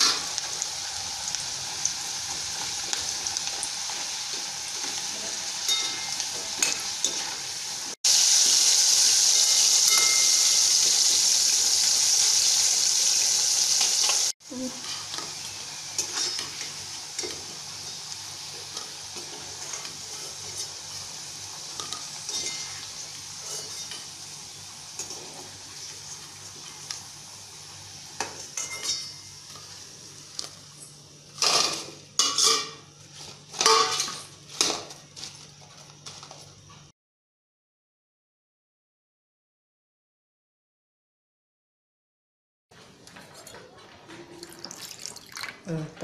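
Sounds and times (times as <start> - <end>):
food deep-frying in oil: 0.0 - 36.9, 44.4 - 45.8
metal ladle scraping a pan: 16.0 - 17.9, 21.7 - 24.1, 31.4 - 34.8.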